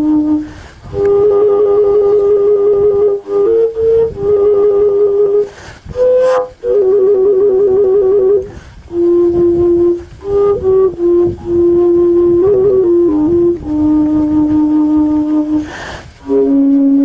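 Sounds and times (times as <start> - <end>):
wooden overtone flute melody: 0.0 - 17.0
breathy rush: 5.4 - 6.6, 15.4 - 16.3.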